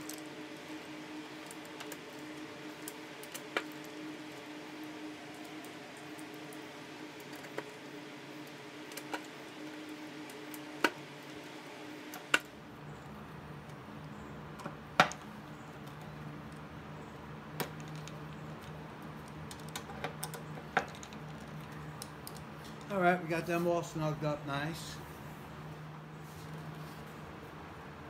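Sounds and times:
steady low hum: 0.0s - 28.0s.

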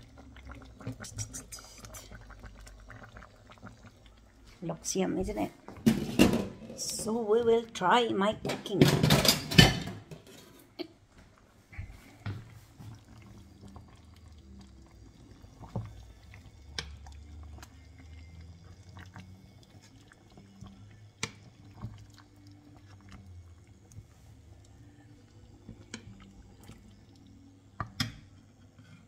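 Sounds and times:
liquid sloshing and dripping: 11.7s - 29.0s
spoon stirring sauce in a pot: 12.8s - 29.0s.

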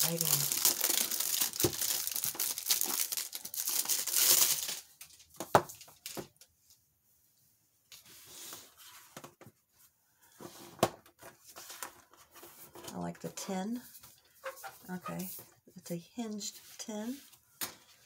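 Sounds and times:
packaging crinkling and tearing: 0.0s - 6.4s.

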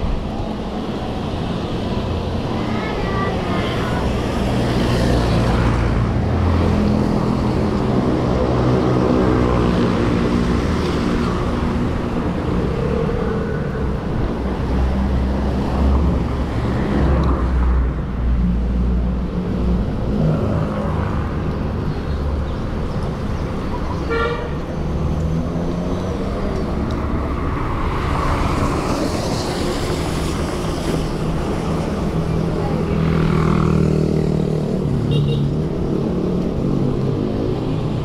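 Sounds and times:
motor traffic passing: 0.0s - 38.0s.

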